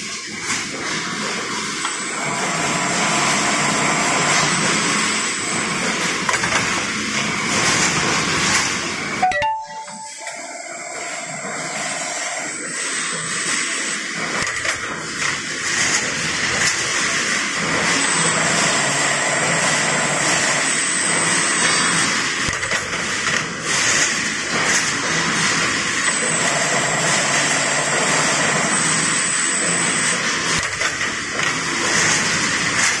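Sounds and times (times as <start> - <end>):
spring assembly machine running: 0.3 - 8.9
high machine tone: 9.2 - 11.4.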